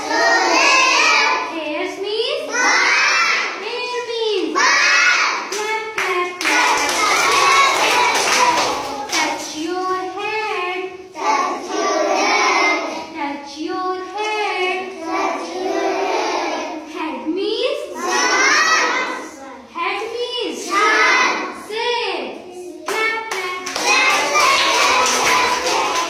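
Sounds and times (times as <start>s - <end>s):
children chanting in unison: 0.0s - 1.5s, 2.4s - 3.6s, 4.4s - 5.5s, 6.4s - 9.4s, 10.8s - 13.2s, 14.5s - 16.9s, 17.9s - 19.7s, 20.4s - 21.9s, 23.6s - 26.0s
hand claps: 5.5s - 9.6s, 22.9s - 26.0s.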